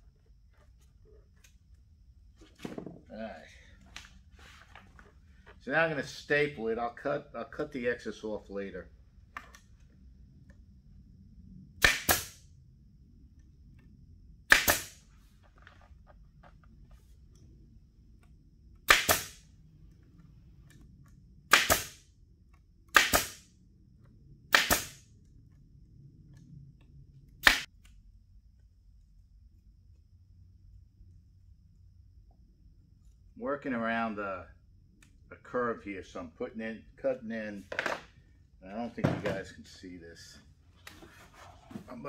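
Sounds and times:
pneumatic stapler shots: 0:11.8 - 0:12.4, 0:14.5 - 0:15.0, 0:18.9 - 0:19.4, 0:21.5 - 0:22.0, 0:22.9 - 0:23.5, 0:24.5 - 0:25.0.

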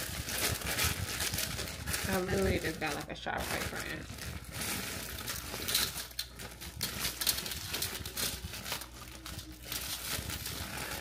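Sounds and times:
frozen pieces pouring into tube: 0:00.0 - 0:11.0
plastic bag crinkling: 0:00.0 - 0:11.0.

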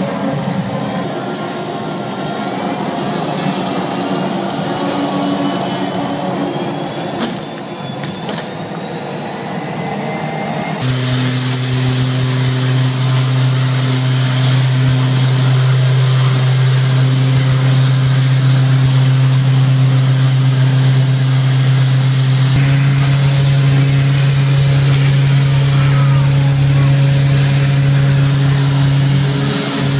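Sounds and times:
jet-like engine roar: 0:00.0 - 0:29.9
machine whine and knocks: 0:10.8 - 0:29.9.

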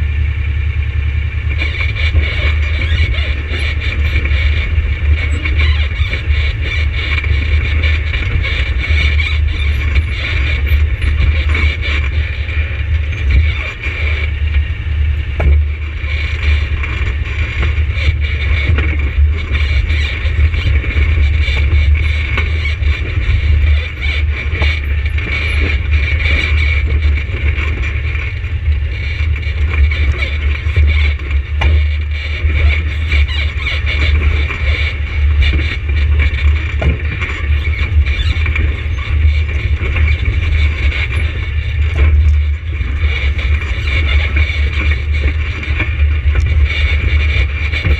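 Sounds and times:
atv engine running: 0:00.0 - 0:47.9
rattles: 0:01.2 - 0:47.9.

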